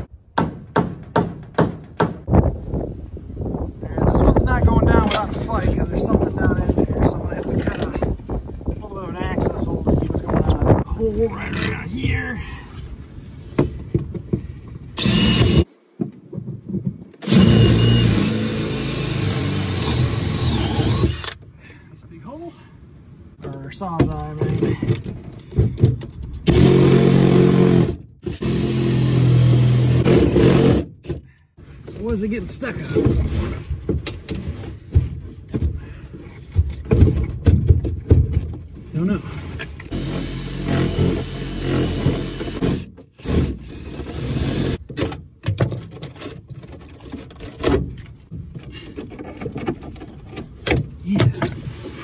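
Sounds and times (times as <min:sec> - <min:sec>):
knocks on plywood wall: 0:00.4 - 0:02.3, 0:36.8 - 0:38.5
cordless drill boring into wood: 0:15.0 - 0:15.7, 0:17.2 - 0:21.4, 0:26.5 - 0:30.8, 0:39.9 - 0:44.8.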